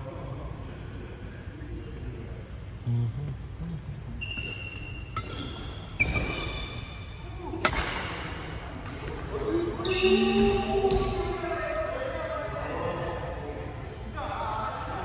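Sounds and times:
racket striking shuttlecock: 0:07.6 - 0:08.1
shoes squeaking on floor: 0:09.3 - 0:11.0.

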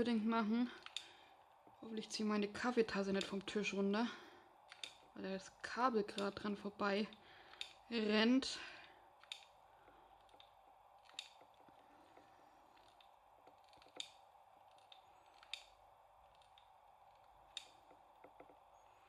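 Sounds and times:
faint room hum: 0:00.0 - 0:19.0
glue gun clicks: 0:00.8 - 0:01.2, 0:04.6 - 0:05.1, 0:06.1 - 0:07.8, 0:09.2 - 0:09.6, 0:10.2 - 0:11.6, 0:12.7 - 0:18.2.

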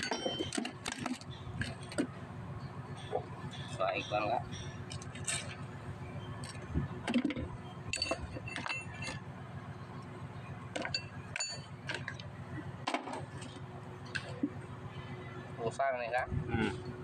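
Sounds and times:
metal tools clinking: 0:00.0 - 0:02.0, 0:03.0 - 0:05.6, 0:06.5 - 0:09.2
low steady hum: 0:00.0 - 0:17.0.

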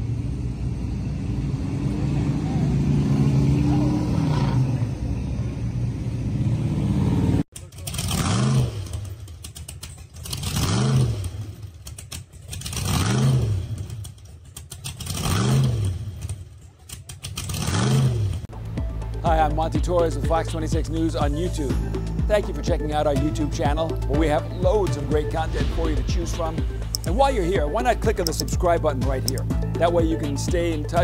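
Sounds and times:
low engine rumble: 0:00.0 - 0:08.0, 0:18.3 - 0:31.0
hot-rod engine revving: 0:06.3 - 0:18.5.

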